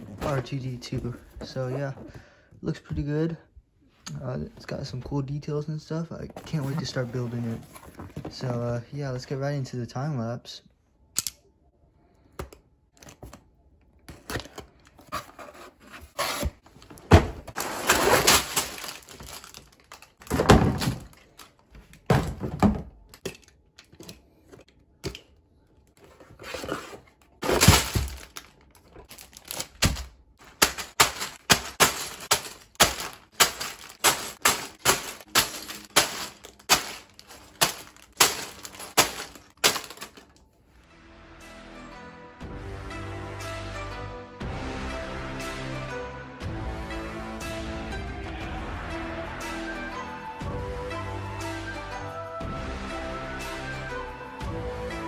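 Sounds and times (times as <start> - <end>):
box cutter opening cardboard box: 14.2 - 19.2, 26.1 - 28.3
plastic bags dropping: 16.8 - 23.6, 26.6 - 40.4
rustling and knocks: 26.2 - 40.2.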